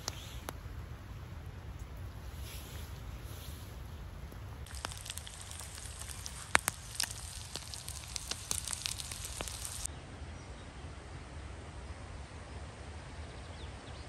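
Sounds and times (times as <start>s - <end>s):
outdoor background noise: 0.0s - 14.0s
food sizzling in a pan: 4.6s - 9.9s.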